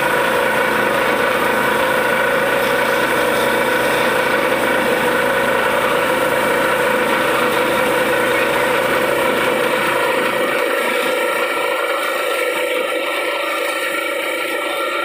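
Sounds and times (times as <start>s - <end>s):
drilling rig engine drone: 0.0s - 15.0s.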